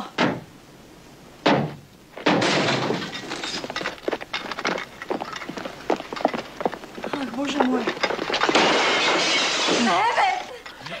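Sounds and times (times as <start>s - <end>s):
clatter of sharp knocks: 1.4s - 6.7s.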